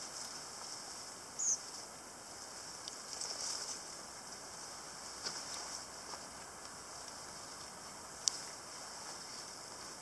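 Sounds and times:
steady high hiss: 0.0 - 10.0
boots scuffing over rocks: 5.2 - 6.5.

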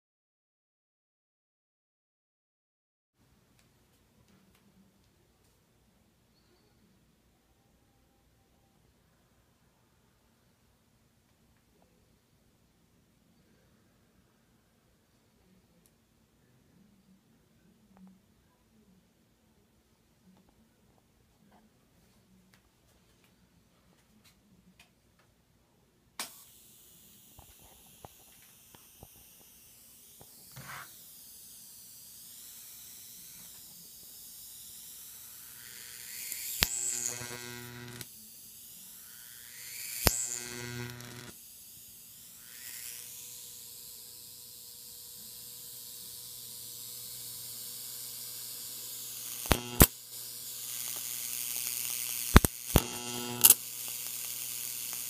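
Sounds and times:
high-voltage arcs snapping: 26.2 - 43.5, 45.4 - 55.0
high-voltage hiss: 26.2 - 55.0
electrical hum: 35.0 - 38.1, 39.0 - 41.3, 46.2 - 55.0.

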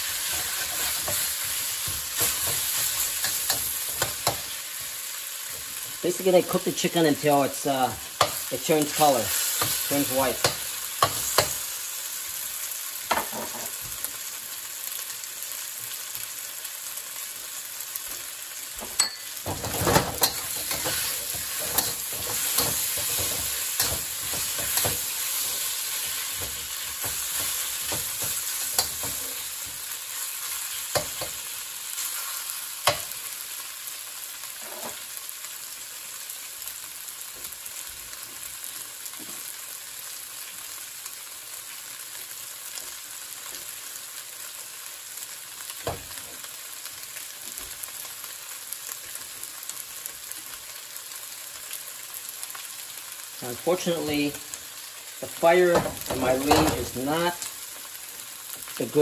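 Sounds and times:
chicken sizzling in oil: 0.0 - 59.0
metal spatula scraping wok: 0.1 - 4.6, 19.0 - 29.5.

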